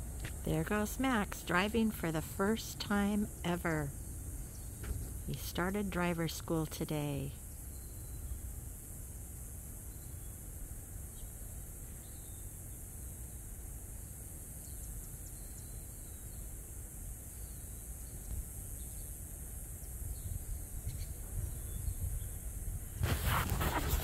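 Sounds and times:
constant high hiss: 0.0s - 24.0s
wind rumble on microphone: 20.0s - 24.0s.

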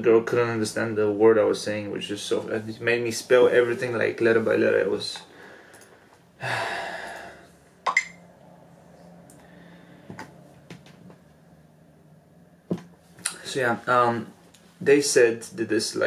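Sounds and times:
man exhaling breathily: 6.4s - 7.5s.

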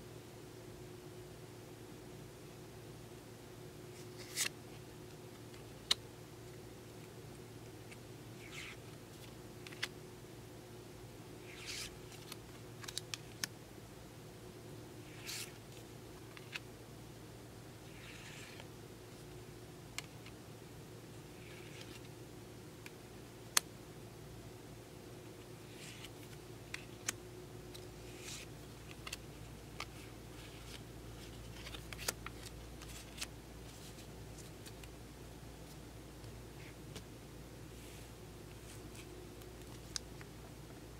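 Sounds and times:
cards sliding on cards: 3.9s - 4.6s, 7.9s - 9.9s, 11.4s - 13.5s, 15.0s - 16.6s, 17.9s - 18.7s, 21.4s - 22.1s, 25.6s - 29.2s, 29.8s - 34.9s.

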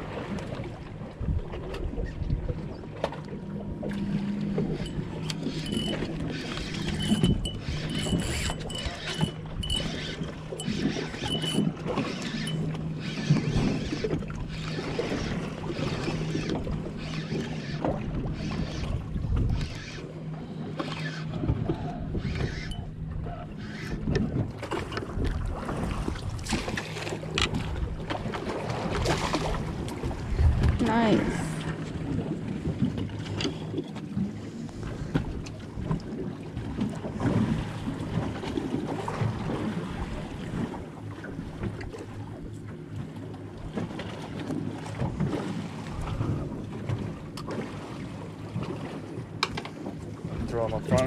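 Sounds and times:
outboard motor idling: 0.0s - 51.0s
wind and water noise: 0.0s - 51.0s
knocks and clicks: 4.8s - 11.7s.

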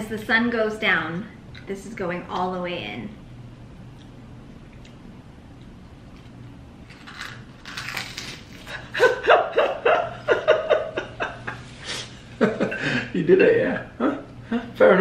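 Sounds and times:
crunchy cracker being chewed: 3.9s - 8.9s
man laughing: 8.7s - 11.6s, 12.4s - 14.8s.

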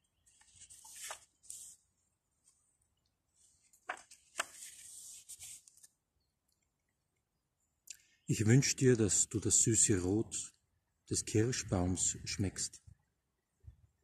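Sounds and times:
book pages rustling: 0.2s - 2.6s, 3.4s - 6.0s
page snaps: 3.8s - 4.6s.

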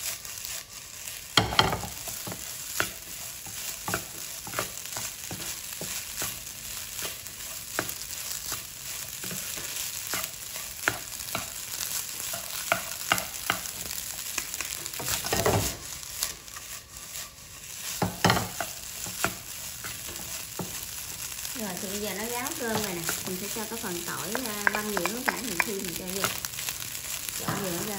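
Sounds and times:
rice sizzling in a pan: 0.0s - 27.9s
wooden spatula scraping a pan: 0.0s - 27.9s.

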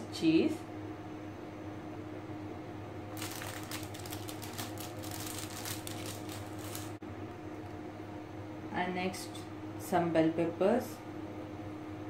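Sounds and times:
plastic film crinkling: 3.2s - 7.0s.

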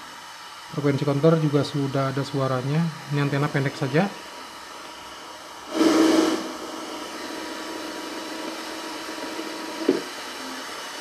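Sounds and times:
steady low whine: 0.7s - 11.0s
radio static hiss: 5.7s - 11.0s.

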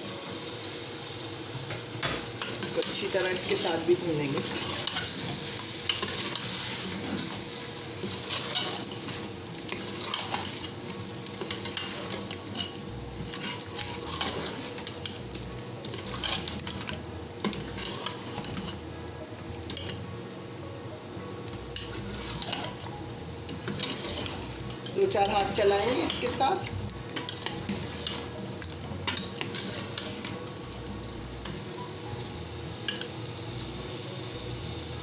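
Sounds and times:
food sizzling in hot oil: 0.0s - 35.0s
metal spoon scraping pot: 11.4s - 15.2s, 23.6s - 28.3s.

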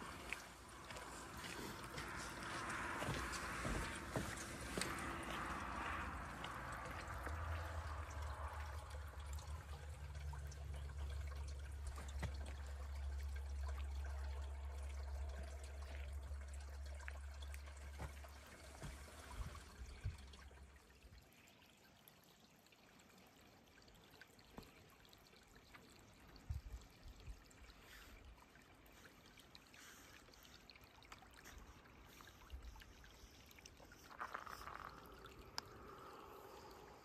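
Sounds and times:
low bumps: 0.0s - 9.5s
brook trickling: 0.0s - 37.0s.

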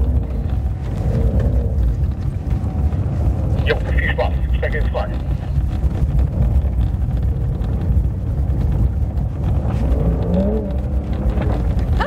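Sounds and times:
car engine rumbling: 0.0s - 12.0s
tyres on gravel: 0.0s - 12.0s.

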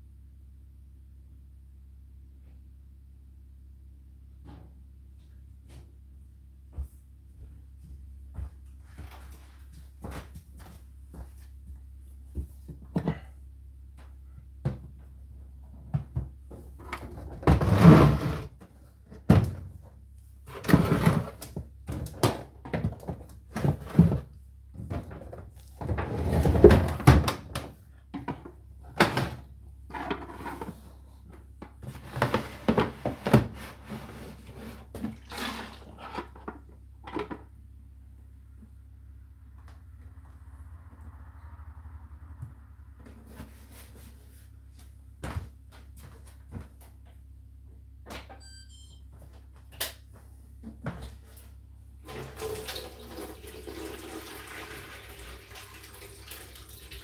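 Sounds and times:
faint low hum: 0.0s - 52.4s
plastic container scraping: 17.5s - 18.6s.

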